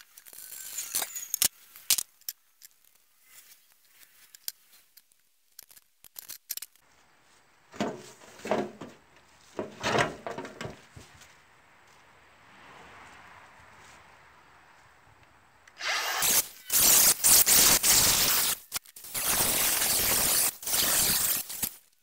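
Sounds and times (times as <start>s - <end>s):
rough scraping on metal: 7.8s - 10.8s
metal drum lids clanking: 9.6s - 10.8s.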